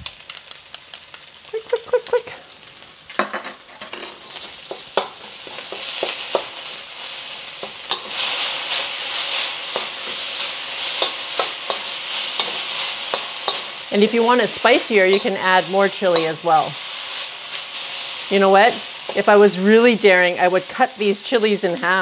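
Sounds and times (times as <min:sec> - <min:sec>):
garlic sizzling in hot oil: 0:00.0 - 0:22.0
metal spatula scraping a wok: 0:03.2 - 0:19.4.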